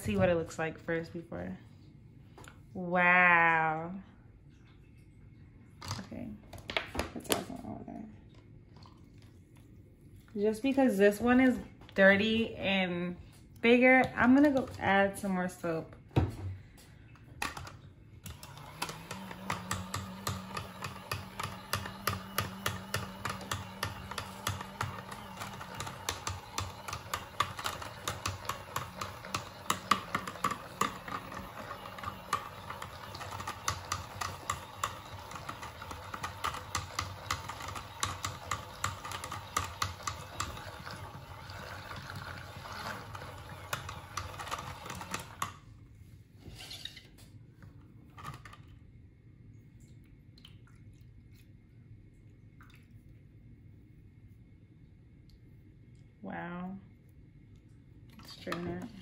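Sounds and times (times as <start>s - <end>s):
small motor hum with clicking rattle: 17.5s - 45.6s.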